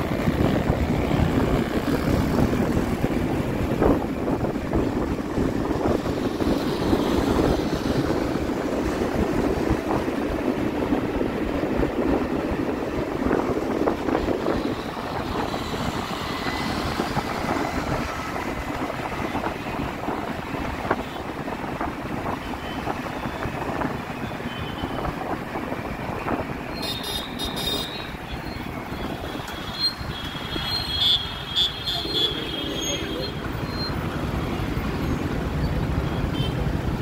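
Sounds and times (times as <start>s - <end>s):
wind over microphone: 0.0s - 26.8s
road noise: 0.0s - 37.0s
scooter traffic: 0.0s - 37.0s.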